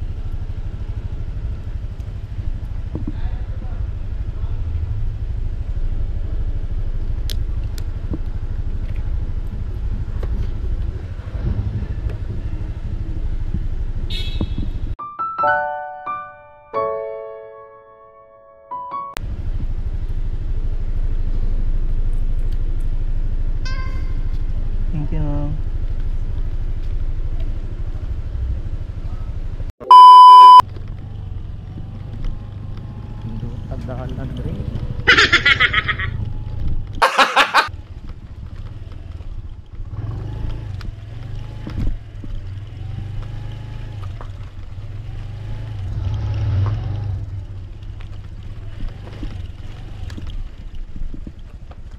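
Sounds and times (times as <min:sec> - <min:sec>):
engine and road rumble: 0:00.0 - 0:15.0, 0:19.1 - 0:51.9
high-pitched tone: 0:15.0 - 0:19.2, 0:29.8 - 0:30.6
high-pitched electronic beep: 0:29.8 - 0:30.6.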